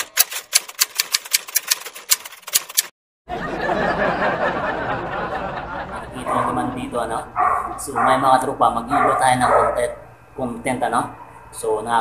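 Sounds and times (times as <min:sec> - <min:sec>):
typewriter key clicks: 0:00.0 - 0:02.9.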